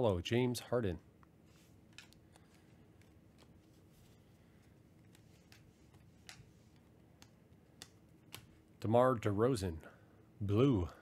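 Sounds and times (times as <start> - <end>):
trading cards flipped by hand: 1.5 - 8.6.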